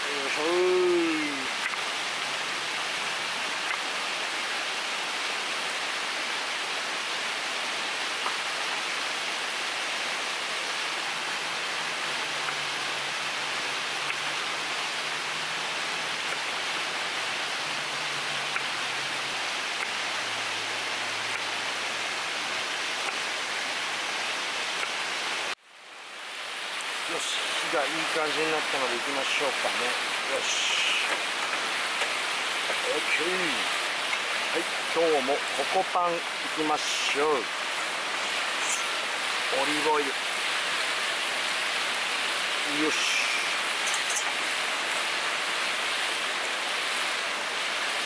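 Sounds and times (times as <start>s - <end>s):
river rushing: 0.0s - 48.0s.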